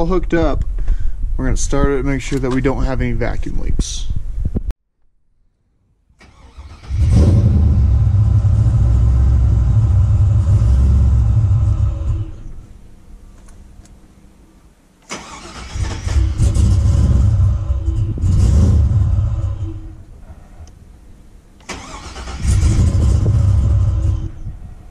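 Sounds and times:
truck engine starting and running: 6.2 - 12.7, 15.0 - 20.7, 21.6 - 24.5.

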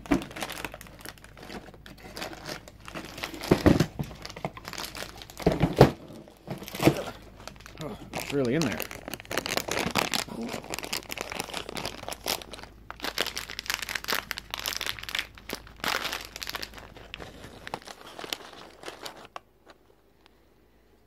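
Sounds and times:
packaging crinkling and tearing: 0.0 - 20.0.

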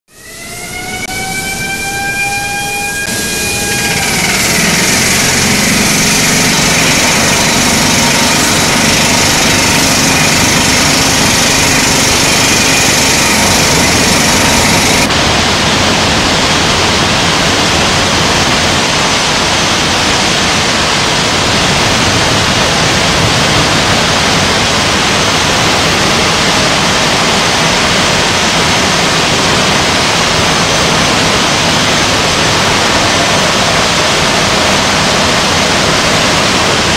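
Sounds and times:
roar of taphole machine: 0.7 - 15.1
hot gas and sparks blowing out: 3.2 - 15.1.

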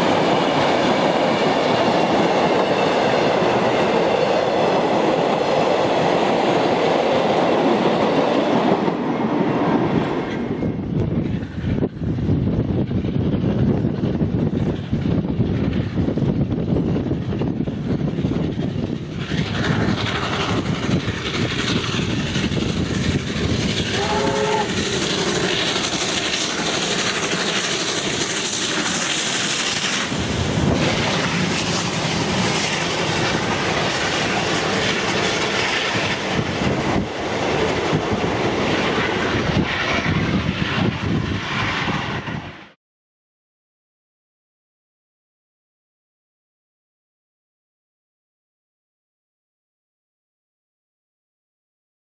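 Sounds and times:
steam locomotive passing: 0.0 - 42.8
train whistle blast: 23.7 - 25.2.

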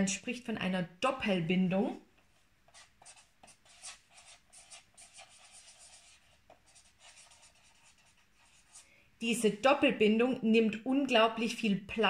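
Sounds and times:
marker writing on whiteboard: 1.9 - 9.6.

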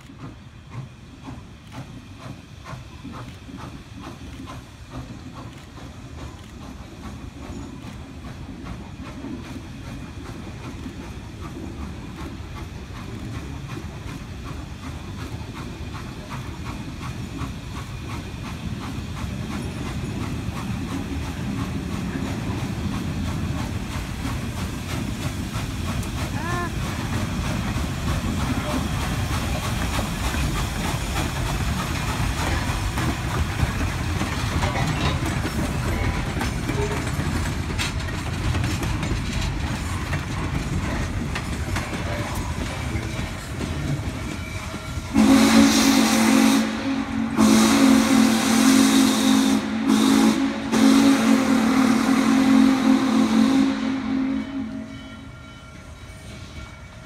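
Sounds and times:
steam locomotive rumble and hiss: 0.0 - 57.0
steam whistle blasts: 45.1 - 55.3.

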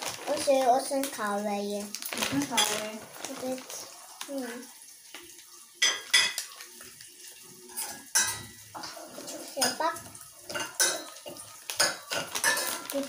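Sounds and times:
foil pouch crinkling: 0.0 - 4.4, 11.6 - 13.0.

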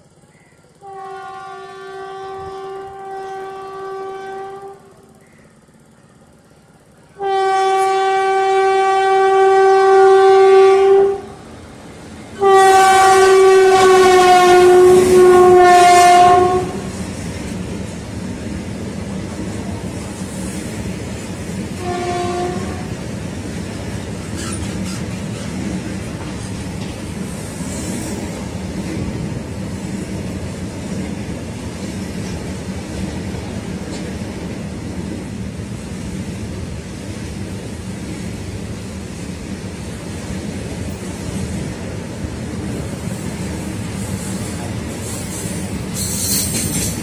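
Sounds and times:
locomotive horn blasts: 0.8 - 5.1, 7.1 - 11.4, 12.4 - 17.0, 21.7 - 23.0.

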